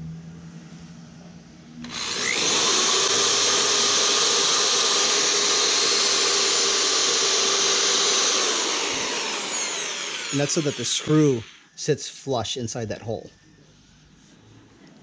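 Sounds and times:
electric drill drilling into wood: 0:01.8 - 0:11.7.

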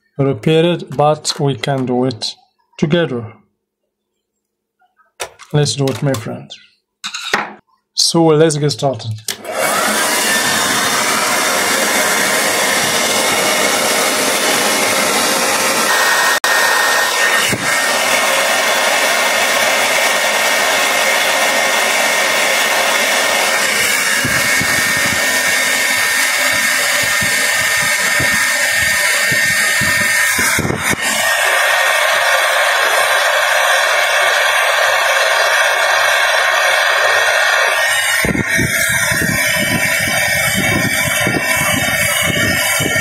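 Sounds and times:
hot air gun blowing: 0:09.3 - 0:43.0.

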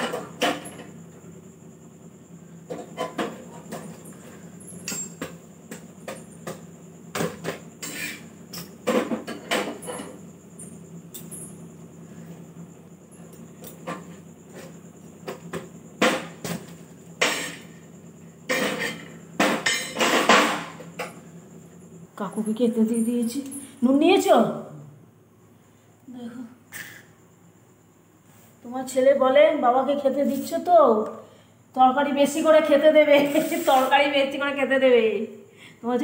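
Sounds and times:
metal tongs clattering on griddle: 0:17.2 - 0:17.7, 0:18.5 - 0:21.1.

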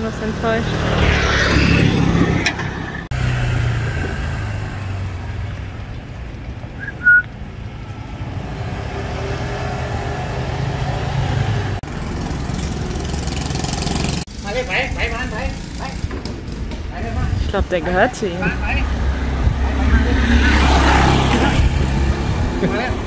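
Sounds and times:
motor scooter idling: 0:02.8 - 0:09.3
short high whistle: 0:06.8 - 0:07.3.

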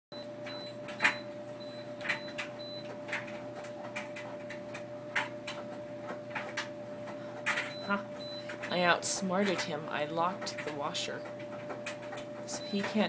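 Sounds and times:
clothes dryer humming: 0:00.1 - 0:13.0
control panel beeps: 0:00.2 - 0:03.0, 0:07.5 - 0:08.8, 0:12.5 - 0:13.0
dryer knocking: 0:00.4 - 0:13.0.

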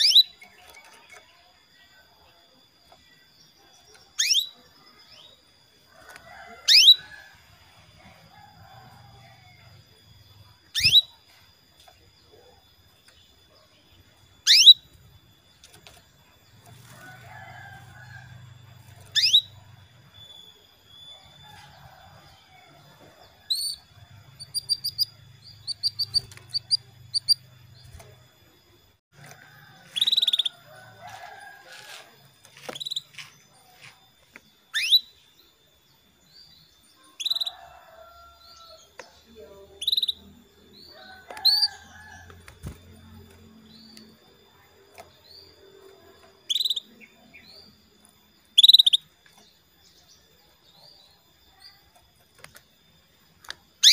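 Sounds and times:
canary chirping: 0:00.0 - 0:01.6, 0:02.9 - 0:05.4, 0:06.4 - 0:07.2, 0:10.3 - 0:11.4, 0:12.3 - 0:22.0, 0:23.3 - 0:28.1, 0:30.0 - 0:30.6, 0:34.7 - 0:35.3, 0:39.8 - 0:42.1, 0:46.4 - 0:49.1.

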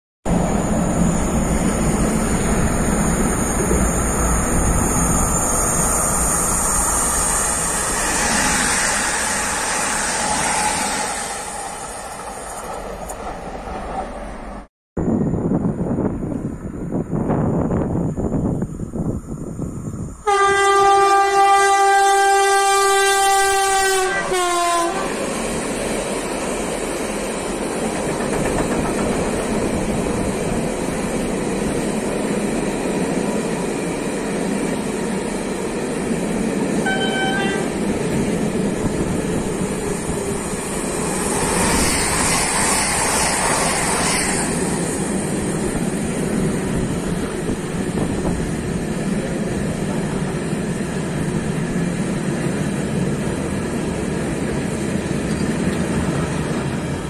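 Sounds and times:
train wheels on rails: 0:00.3 - 0:57.0
train horn: 0:20.2 - 0:25.2, 0:36.8 - 0:37.9.

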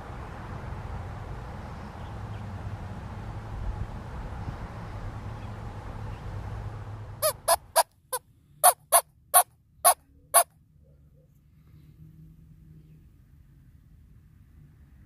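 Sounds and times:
outdoor rumble: 0:00.0 - 0:07.8.

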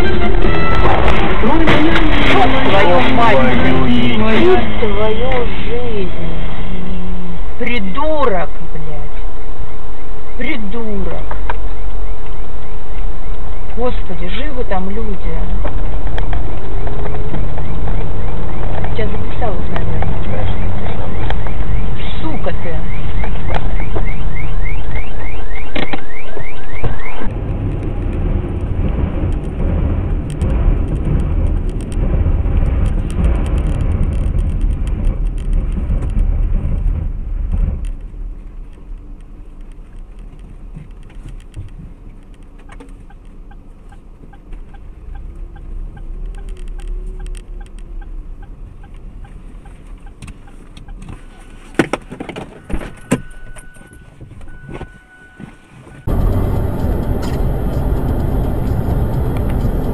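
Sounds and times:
car road and engine noise: 0:00.0 - 0:59.9
regular ticking: 0:27.7 - 0:51.1, 0:56.0 - 0:59.9.

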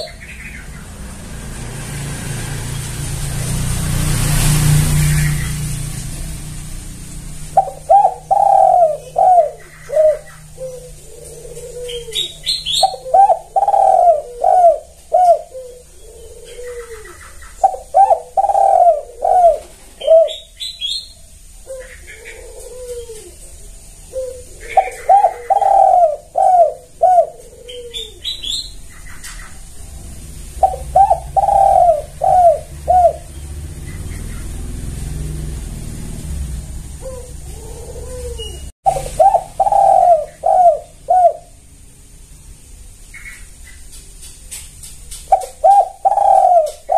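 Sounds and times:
dove cooing: 0:00.0 - 0:01.2, 0:07.4 - 0:21.0, 0:21.6 - 0:29.7, 0:30.6 - 0:35.4, 0:36.9 - 0:41.6, 0:45.3 - 0:46.9.

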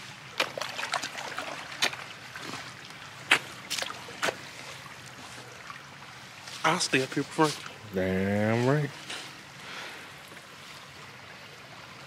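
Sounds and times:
sharp water splashes: 0:00.2 - 0:07.8
water sloshing around legs: 0:00.2 - 0:07.8.

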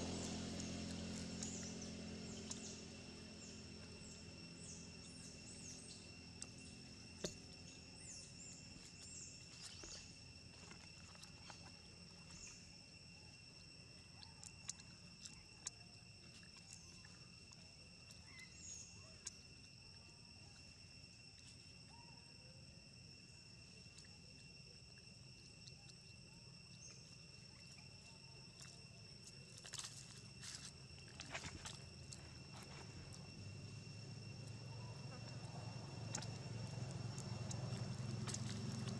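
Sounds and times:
insect drone: 0:00.0 - 0:38.9
faint bird chirps: 0:16.5 - 0:19.4, 0:21.9 - 0:22.6.

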